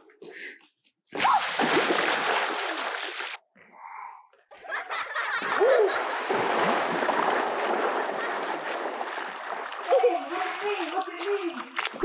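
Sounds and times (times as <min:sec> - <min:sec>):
water splashing and churning: 0:01.2 - 0:03.4, 0:05.4 - 0:12.0
bursts of laughter: 0:04.5 - 0:07.2.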